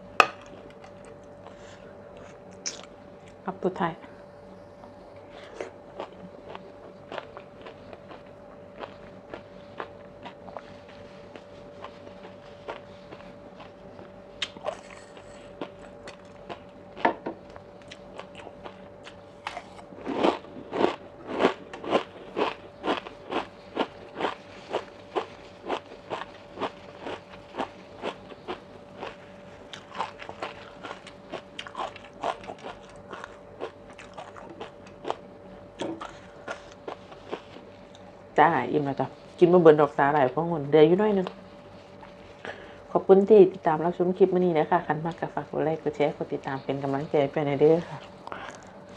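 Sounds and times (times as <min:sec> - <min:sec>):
faint steady hum: 0:00.0 - 0:48.9
person chewing crunchy food: 0:04.8 - 0:38.3, 0:47.9 - 0:48.9.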